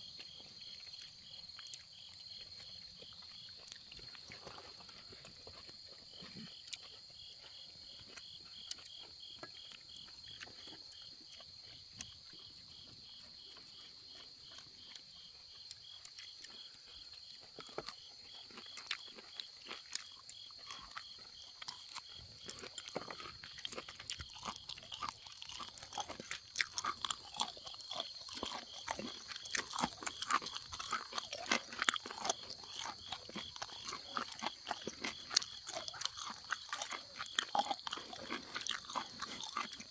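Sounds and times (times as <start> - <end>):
irregular crunchy crackles: 0.0 - 39.9
night insects chirring: 0.0 - 39.9.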